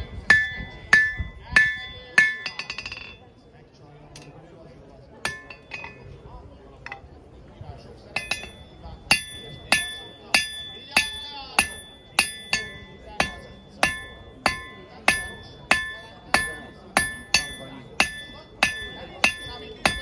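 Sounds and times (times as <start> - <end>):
hammer striking iron on anvil: 0.0 - 3.2, 5.3 - 6.2, 8.1 - 20.0
anvil ringing: 0.0 - 3.3, 5.3 - 6.2, 8.1 - 20.0.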